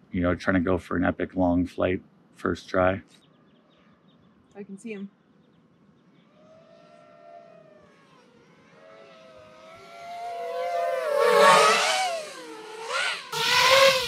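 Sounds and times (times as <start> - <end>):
drone propeller whine: 6.2 - 14.0.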